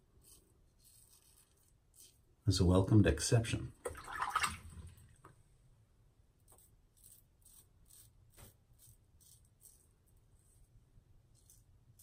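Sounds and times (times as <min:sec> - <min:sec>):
razor scraping stubble: 0:00.2 - 0:02.2, 0:06.4 - 0:09.9.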